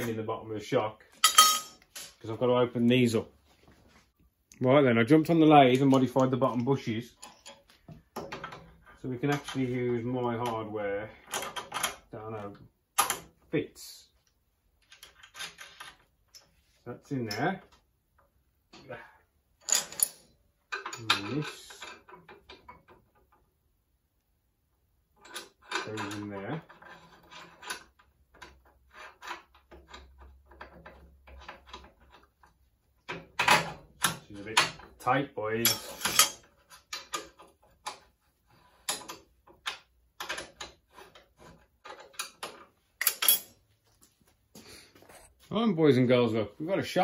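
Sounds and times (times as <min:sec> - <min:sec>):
man speaking: 0:00.0 - 0:01.1, 0:02.2 - 0:03.4, 0:04.5 - 0:07.2, 0:09.0 - 0:11.2, 0:13.5 - 0:14.2, 0:16.8 - 0:17.7, 0:21.0 - 0:21.8, 0:34.2 - 0:35.8, 0:45.4 - 0:47.0
metallic knocks and clinks: 0:01.2 - 0:02.2, 0:41.9 - 0:43.6.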